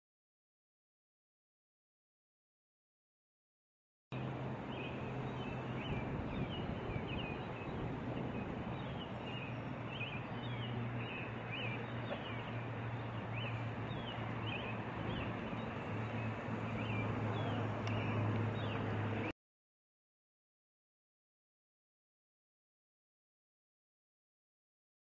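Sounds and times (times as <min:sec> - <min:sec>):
small birds chirping: 0:04.2 - 0:19.3.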